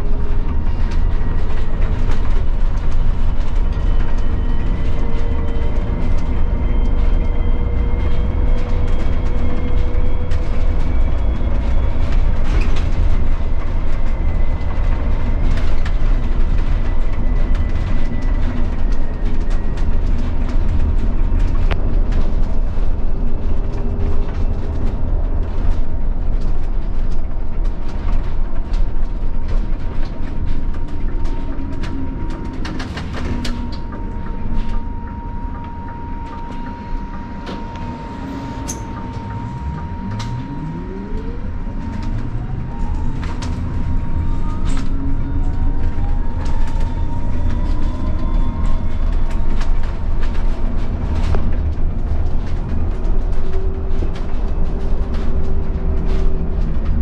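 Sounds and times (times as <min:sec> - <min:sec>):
bus road rumble: 0:00.0 - 0:57.0
electric motor whine: 0:34.3 - 0:46.8.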